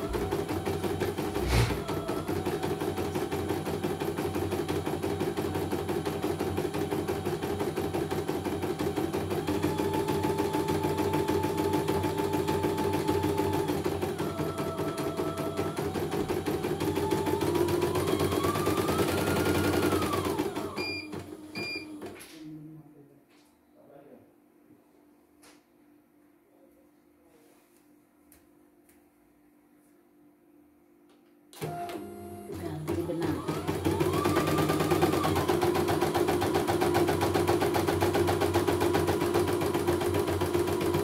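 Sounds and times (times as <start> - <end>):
embroidery machine stitching: 0.0 - 22.0, 31.6 - 41.0
machine beeps: 20.7 - 21.9.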